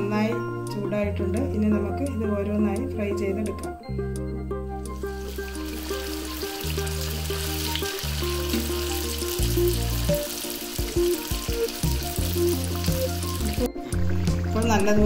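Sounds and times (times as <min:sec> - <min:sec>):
background music with bass: 0:00.0 - 0:15.0
spring rolls sizzling in oil: 0:05.0 - 0:14.8.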